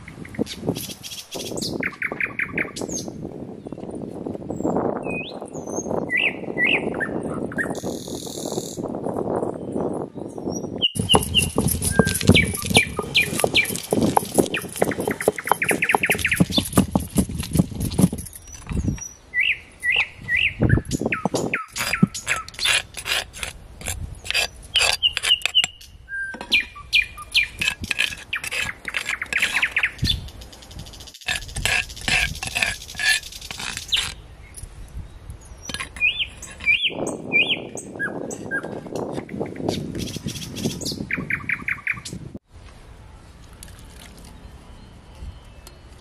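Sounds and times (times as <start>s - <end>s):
small birds chirping: 9.7s - 23.2s, 24.2s - 42.2s
stone grinder scraping and clicking: 11.0s - 19.1s, 21.2s - 34.2s, 35.7s - 36.9s.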